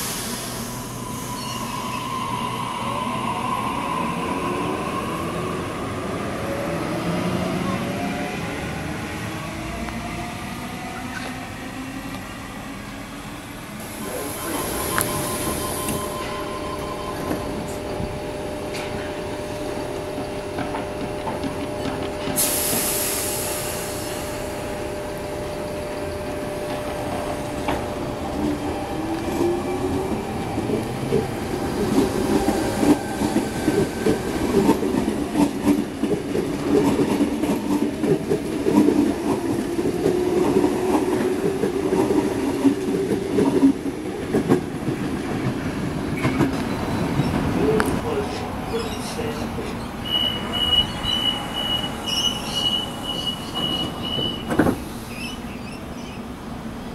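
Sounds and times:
air hiss: 0.0s - 1.5s, 22.4s - 24.6s
electric train humming: 0.0s - 56.9s.

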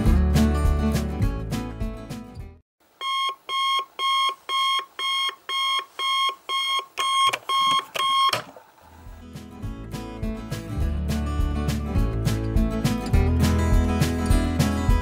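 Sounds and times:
music: 0.0s - 2.6s, 9.0s - 15.0s
alarm clock beeping: 3.0s - 8.4s.

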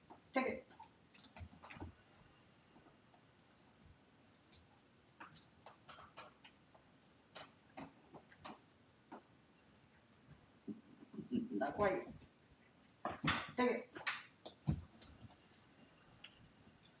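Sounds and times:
claws clicking on hardwood floor: 4.3s - 9.3s, 13.0s - 15.6s.

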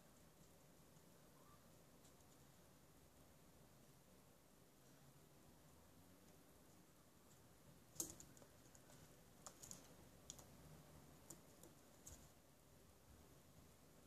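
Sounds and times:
pigeon claws and beak tapping: 7.9s - 10.6s, 11.2s - 12.3s.

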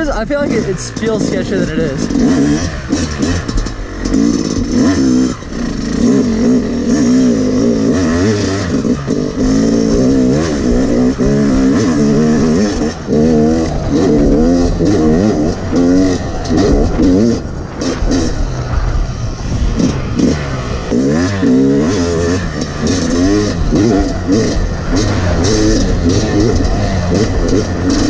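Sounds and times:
dirt bike engine revving: 0.0s - 28.0s.

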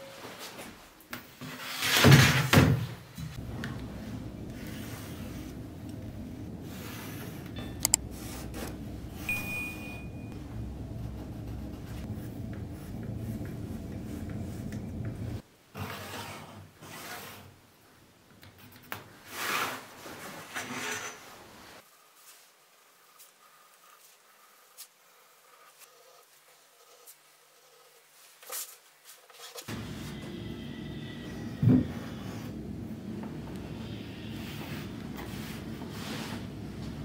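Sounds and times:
steady low hum: 3.4s - 15.4s, 29.7s - 37.0s.

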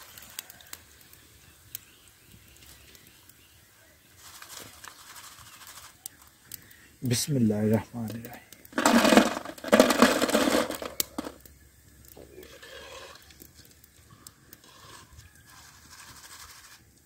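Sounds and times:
oil sizzling and crackling: 0.0s - 17.0s
chips rattling in wire skimmer: 8.8s - 11.4s.

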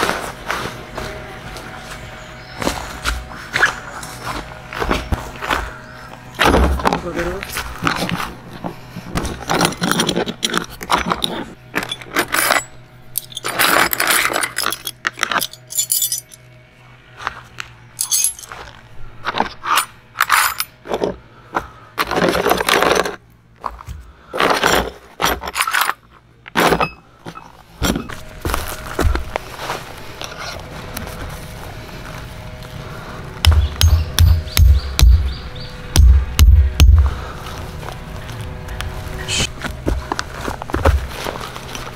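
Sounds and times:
metal tent pegs clinking: 9.4s - 16.4s, 18.0s - 18.6s, 19.4s - 20.8s, 24.4s - 28.2s.

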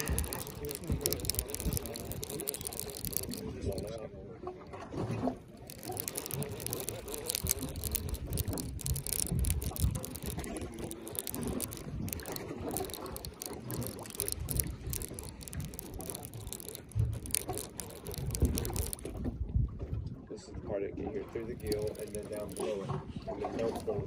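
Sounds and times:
fishing reel clicking: 0.0s - 4.0s, 5.5s - 19.2s, 21.4s - 22.8s.

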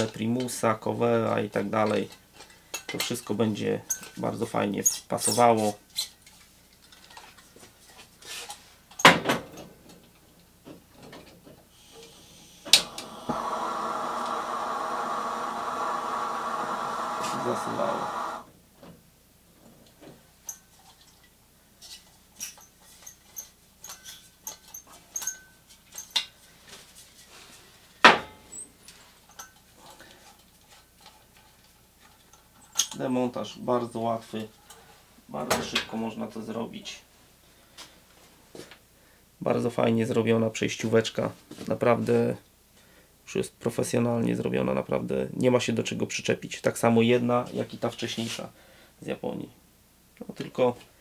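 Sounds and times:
faint gas hiss: 11.7s - 18.5s, 36.0s - 39.5s, 42.4s - 43.6s, 47.4s - 51.0s
lantern burning hiss: 11.7s - 18.5s.

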